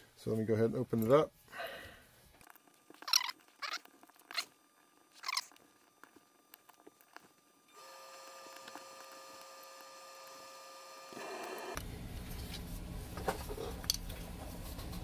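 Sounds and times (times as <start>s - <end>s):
furnace humming: 0.0s - 15.0s
hex key squeaky scrapes: 3.0s - 4.5s, 5.1s - 5.6s.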